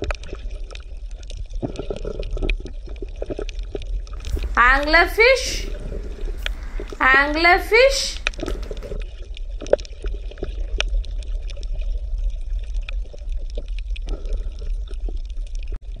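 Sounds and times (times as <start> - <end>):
water bubbling and gurgling: 5.7 - 6.9.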